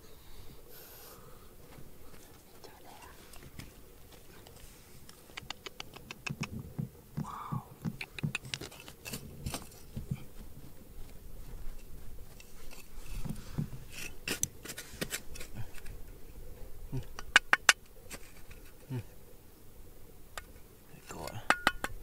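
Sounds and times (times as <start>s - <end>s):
sharp clicks: 5.1s - 6.6s
scratching and scraping: 7.9s - 10.3s, 11.5s - 16.2s, 17.0s - 19.0s.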